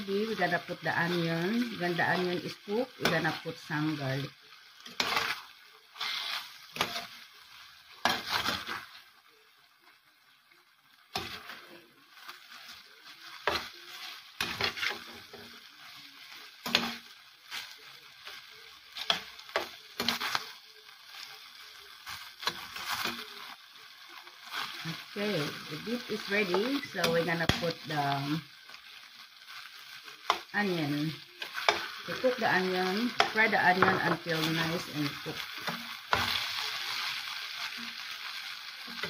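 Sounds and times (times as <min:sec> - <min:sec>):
meat sizzling in a pan: 0:00.0 - 0:39.0
spatula scraping a pan: 0:04.7 - 0:09.1, 0:11.0 - 0:23.6, 0:31.3 - 0:39.0.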